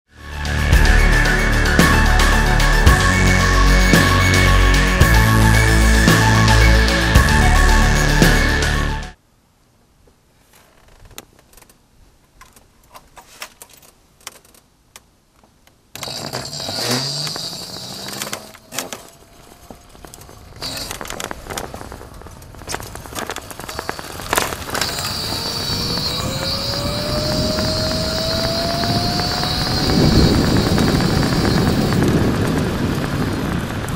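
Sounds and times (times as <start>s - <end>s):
road noise: 0.1s - 9.2s, 14.3s - 33.9s
electric motor whine: 0.8s - 9.1s, 16.0s - 33.9s
bike clicks and rattles: 10.7s - 33.9s.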